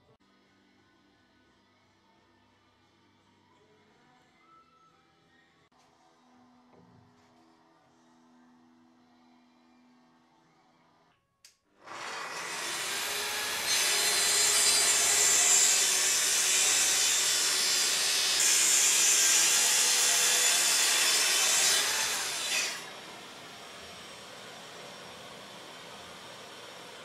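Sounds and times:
track saw cutting wood: 11.8s - 27.0s.

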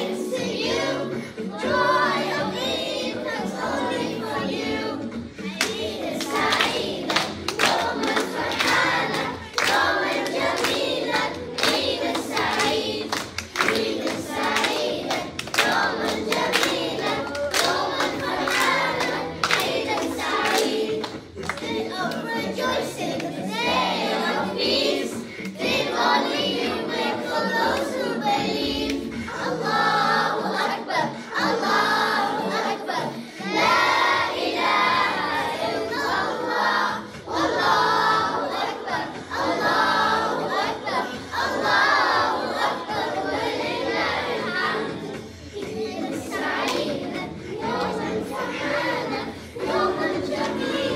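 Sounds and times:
backing music with bass line: 0.0s - 50.9s
children's choir singing: 0.0s - 50.9s
hand claps: 5.6s - 22.4s, 46.5s - 47.0s.

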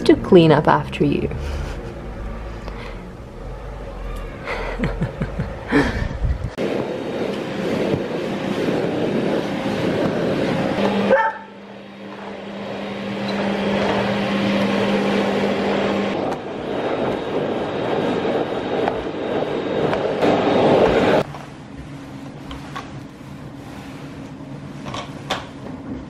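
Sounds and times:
vacuum cleaner running: 0.0s - 26.0s
dog barking sharply: 11.1s - 11.6s.

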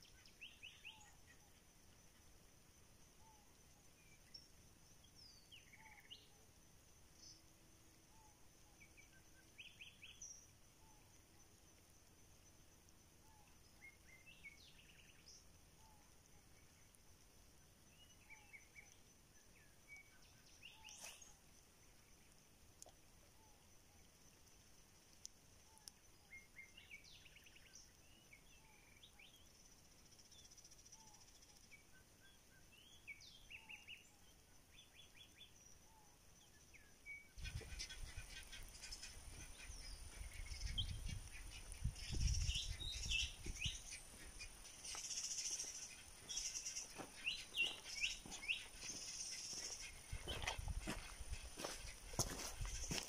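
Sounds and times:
birds chirping and calling: 37.3s - 53.0s
footsteps: 43.1s - 53.0s.

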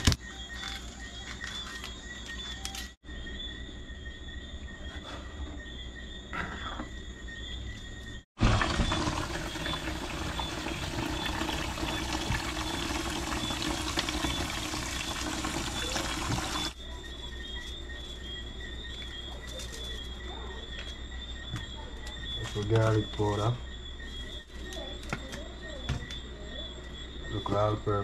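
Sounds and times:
tap running into a bowl: 8.4s - 16.7s
hands rinsing in water: 8.4s - 16.8s.

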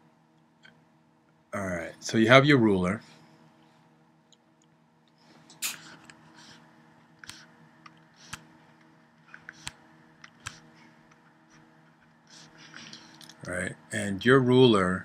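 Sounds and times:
faint steady hum: 0.0s - 15.0s
stylus clicking on tablet: 9.4s - 10.7s
stylus scraping on tablet: 11.5s - 13.2s.

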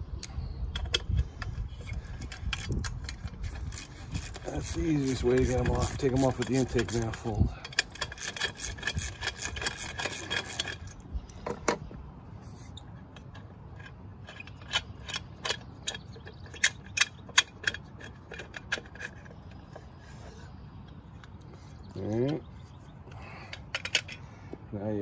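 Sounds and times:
ratchet wrench clicking: 0.7s - 10.9s
metal clicks and clinks: 13.2s - 19.7s, 23.5s - 24.2s.

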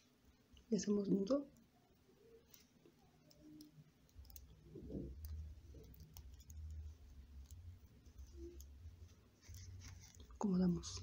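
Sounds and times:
beads clicking together: 2.3s - 10.7s.

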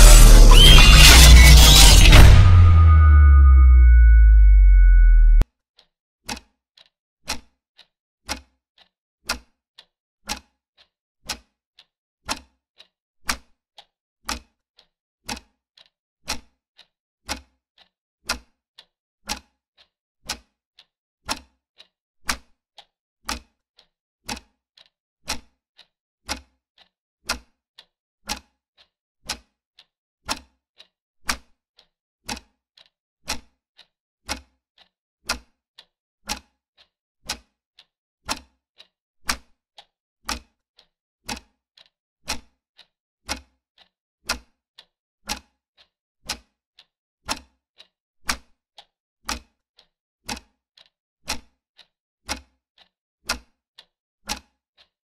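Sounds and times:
clock ticking: 0.0s - 5.4s, 13.3s - 16.5s, 17.3s - 20.4s, 21.3s - 25.5s, 26.3s - 29.4s, 32.3s - 37.4s, 38.3s - 42.5s, 43.3s - 46.4s.

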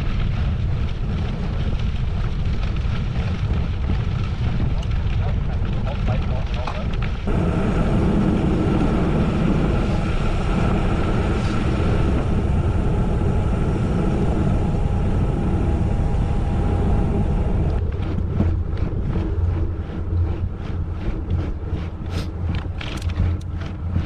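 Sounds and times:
wind and tyre rumble: 0.0s - 24.0s
bicycle clicking: 22.2s - 23.9s.

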